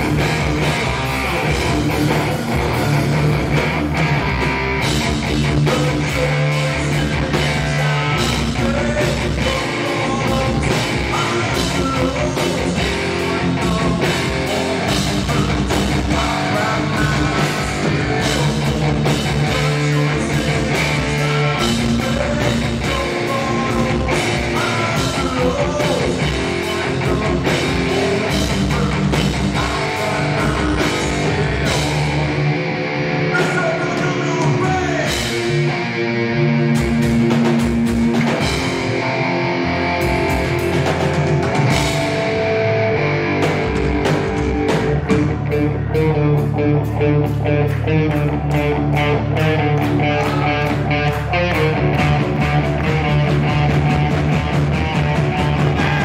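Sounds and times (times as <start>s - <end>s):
bass guitar: 0.0s - 56.0s
drums: 0.0s - 56.0s
electric guitar: 0.0s - 56.0s
man singing: 5.2s - 32.4s, 33.3s - 35.4s, 49.3s - 54.1s, 55.0s - 56.0s.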